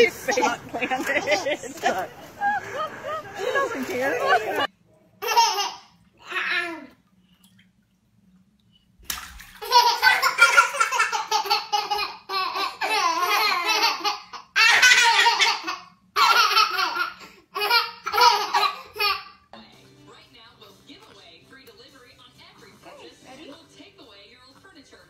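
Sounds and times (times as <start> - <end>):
babies laughing: 0.0 - 6.8, 9.6 - 19.4.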